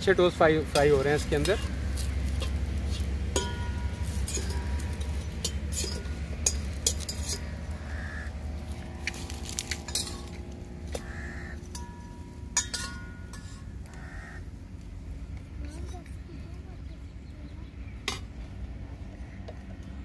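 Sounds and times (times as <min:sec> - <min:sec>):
bread frying: 0:00.0 - 0:14.0
steady low rumble: 0:00.0 - 0:20.0
metal utensil clinking on pan: 0:00.7 - 0:07.6, 0:09.1 - 0:13.7
crow cawing: 0:07.4 - 0:08.4, 0:10.9 - 0:11.7, 0:13.8 - 0:14.5.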